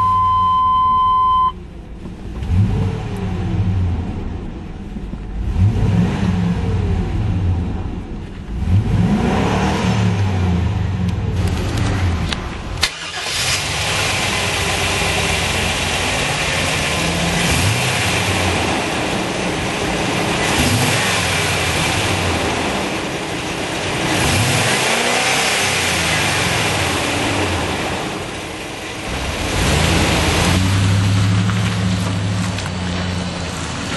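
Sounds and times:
steady beep: 0.0 - 1.6
truck engine revving: 0.0 - 33.9.

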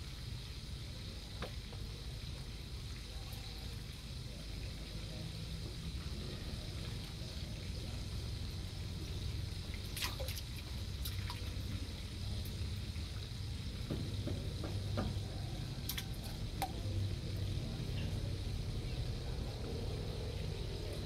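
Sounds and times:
water splashing and dripping: 5.4 - 18.2.

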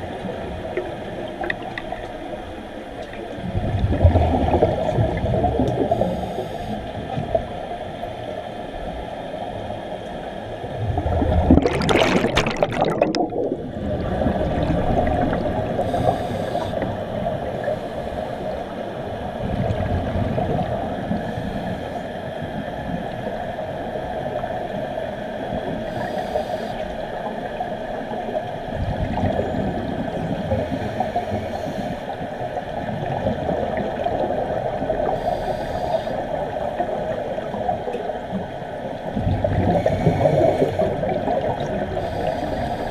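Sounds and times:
steady hum: 0.0 - 42.9
diver's bubbles gurgling: 3.4 - 6.2, 10.7 - 17.7, 27.4 - 31.5, 32.4 - 35.3, 39.0 - 42.9.

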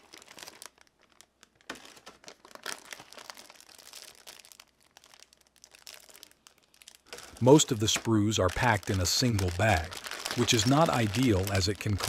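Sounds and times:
plastic bags crinkling: 0.0 - 12.0.

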